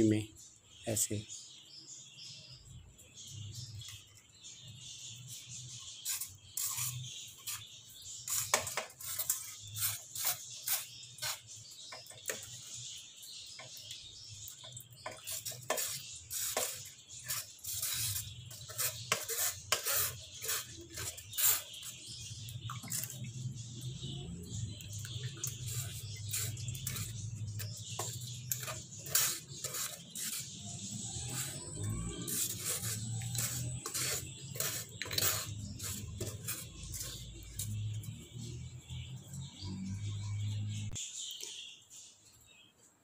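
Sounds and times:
ladle scraping metal strainer: 6.1s - 11.5s, 15.0s - 22.2s, 25.4s - 37.8s.

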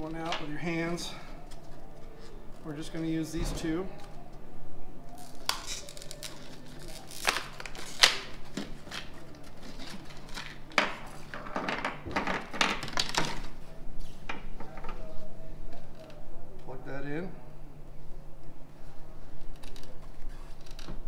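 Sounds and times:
plastic packaging crinkling: 5.1s - 11.4s.

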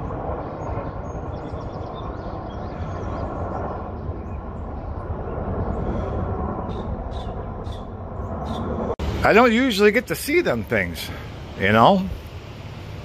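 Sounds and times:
helicopters flying overhead: 0.0s - 13.0s.

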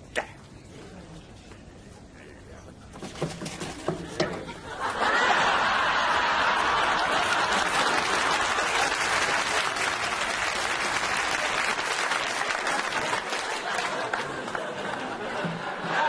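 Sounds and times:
studio audience applauding: 5.2s - 15.2s.

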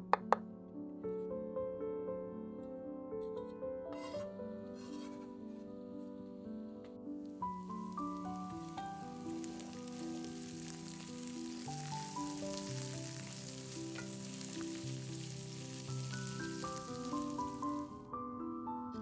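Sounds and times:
soft instrumental music: 0.0s - 19.0s
onions and garlic sizzling in oil: 7.4s - 18.0s.

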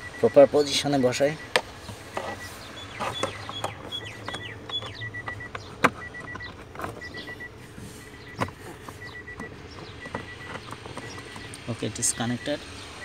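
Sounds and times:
high chirping beep: 0.0s - 1.6s, 2.2s - 13.0s
plastic clicks and knocks: 8.3s - 11.6s.

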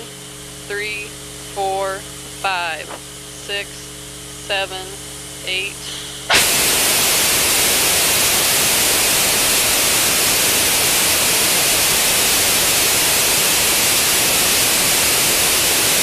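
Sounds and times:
rocket engine roaring: 5.8s - 16.0s.

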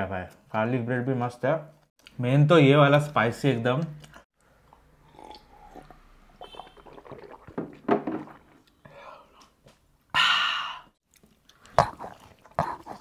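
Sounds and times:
men gulping water: 4.1s - 9.4s
eating and handling noises: 11.0s - 13.0s.

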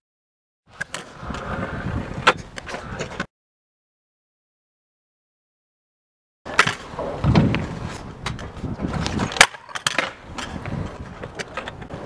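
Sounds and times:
scooter wheels rolling on concrete: 0.7s - 3.3s, 6.5s - 12.0s
scooter deck clacking on concrete: 8.2s - 11.9s.

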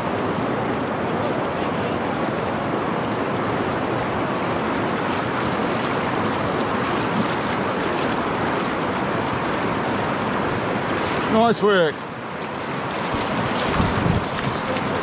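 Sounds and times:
water rushing over rocks: 0.0s - 15.0s.

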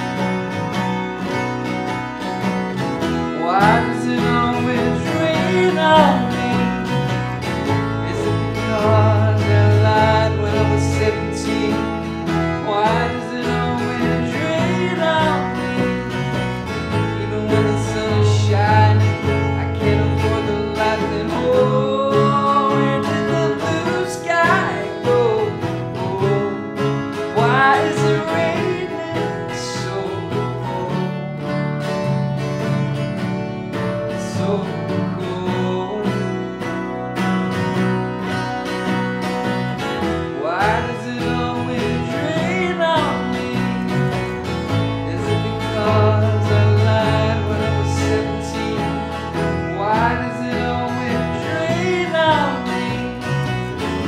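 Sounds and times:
acoustic guitar strumming: 0.0s - 54.0s
electric bass line: 0.0s - 54.0s
man singing: 3.2s - 33.3s, 33.9s - 37.0s, 40.0s - 54.0s.

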